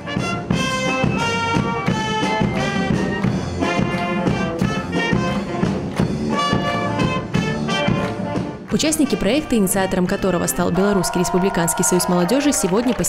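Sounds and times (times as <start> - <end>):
clarinet: 0.0 - 5.5
steady drum beat: 0.0 - 9.4
brass horns and trumpets: 0.0 - 13.0.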